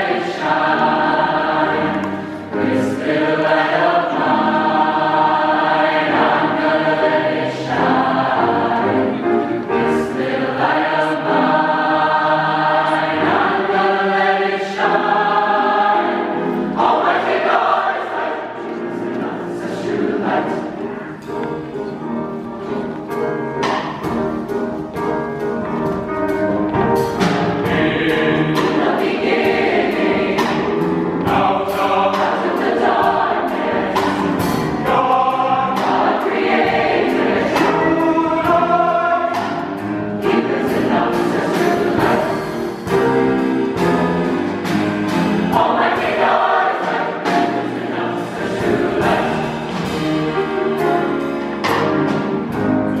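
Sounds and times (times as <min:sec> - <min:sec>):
choir singing gospel piece: 0:00.0 - 0:53.0
instrumental accompaniment: 0:00.0 - 0:53.0.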